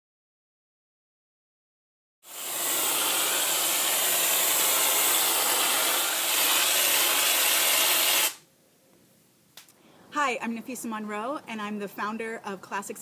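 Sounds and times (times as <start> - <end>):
aerosol can hissing: 2.3 - 8.4.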